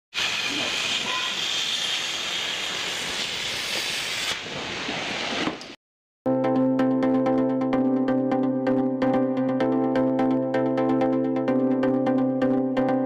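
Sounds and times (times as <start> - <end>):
electronic background music: 6.3 - 13.0.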